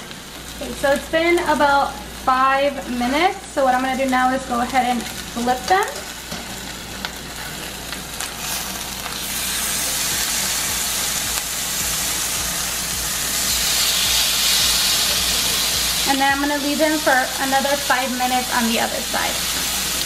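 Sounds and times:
chicken sizzling in hot oil: 0.0 - 20.0.

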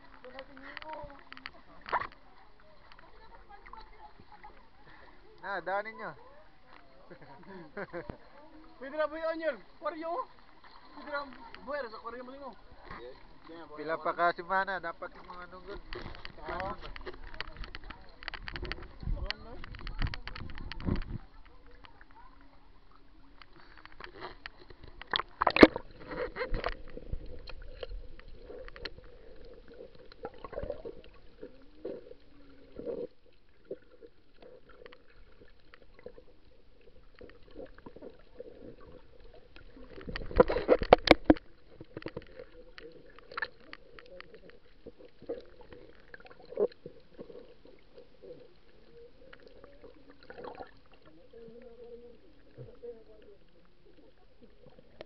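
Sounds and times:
water moving and gurgling: 0.0 - 55.0
faint steady hum: 12.5 - 55.0.

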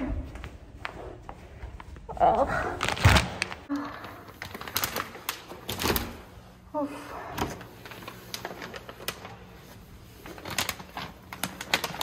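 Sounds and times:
plastic packaging crinkling: 2.8 - 6.2, 7.8 - 12.0.

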